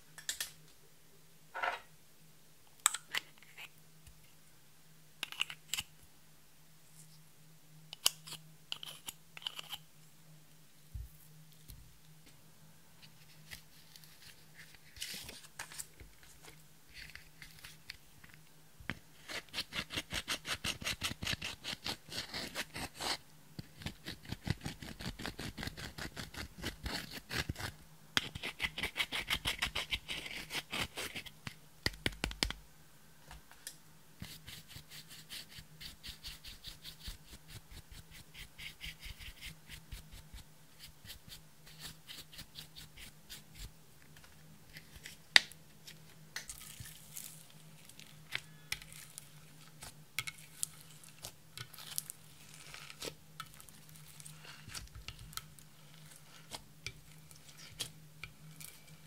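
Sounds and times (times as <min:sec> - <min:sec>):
tool scraping eyeshadow powder: 0:08.0 - 0:09.8, 0:19.2 - 0:31.3, 0:34.2 - 0:43.7, 0:46.6 - 0:59.0.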